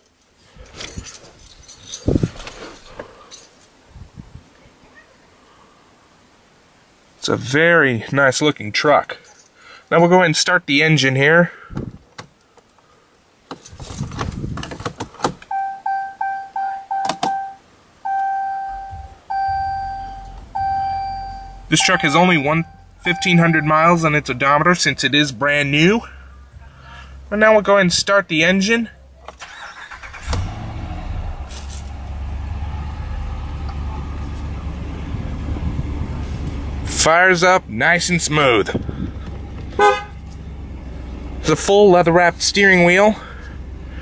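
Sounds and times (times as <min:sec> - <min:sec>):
keys jangling: 0:00.0 - 0:03.7, 0:13.6 - 0:14.3
dashboard warning chime beeps: 0:15.5 - 0:24.3
engine idling: 0:29.1 - 0:44.0.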